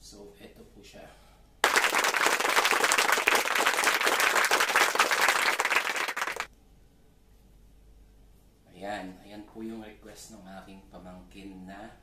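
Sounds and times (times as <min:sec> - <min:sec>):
crowd applause: 0:01.6 - 0:06.5.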